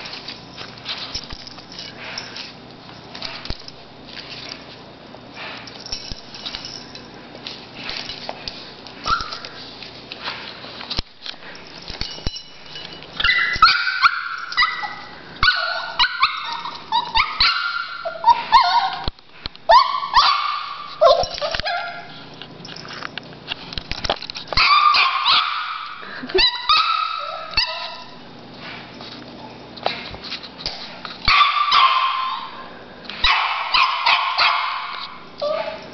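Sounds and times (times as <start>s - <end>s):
puppy whining: 9.0s - 9.6s, 13.2s - 19.1s, 19.7s - 22.3s, 24.6s - 28.2s, 35.0s - 35.9s
puppy yapping: 9.1s - 9.4s, 13.2s - 19.1s, 19.7s - 22.2s, 24.6s - 28.2s, 31.3s - 32.6s, 33.2s - 35.9s.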